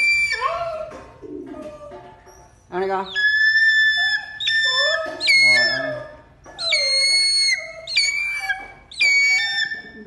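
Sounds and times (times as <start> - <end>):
eagle whistled calls: 3.2 - 6.0, 6.6 - 10.0.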